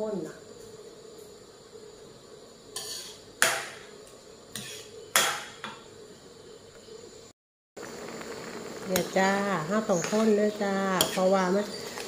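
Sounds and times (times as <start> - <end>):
metal spatula scraping a wok: 2.7 - 3.8, 4.5 - 5.6, 11.0 - 12.0.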